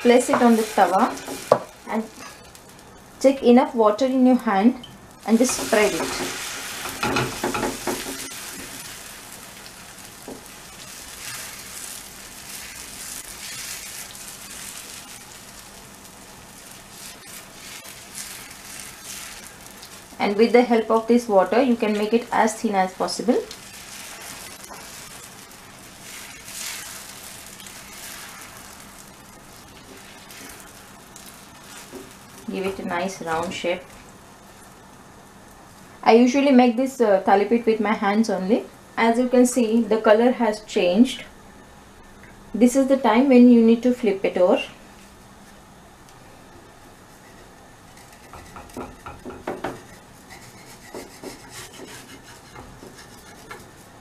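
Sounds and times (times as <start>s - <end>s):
water hissing on hot iron: 0.0s - 3.3s, 5.0s - 36.0s, 47.0s - 54.0s
batter sizzling on hot griddle: 0.0s - 36.6s, 45.4s - 54.0s
spatula scraping a griddle: 10.9s - 14.9s, 16.7s - 19.9s, 23.7s - 29.1s, 47.1s - 54.0s.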